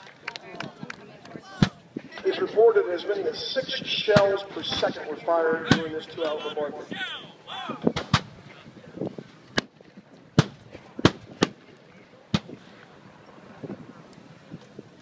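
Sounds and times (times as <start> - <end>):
cannons firing: 4.0 - 6.5, 7.9 - 8.4, 10.4 - 11.7, 12.3 - 12.7.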